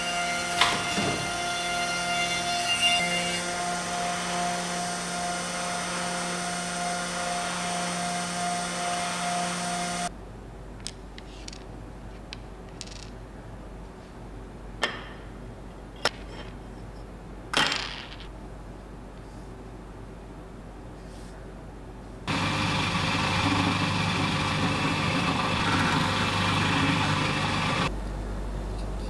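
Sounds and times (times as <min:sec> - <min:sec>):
electric motor humming and whining: 0:00.0 - 0:10.1, 0:22.3 - 0:27.9.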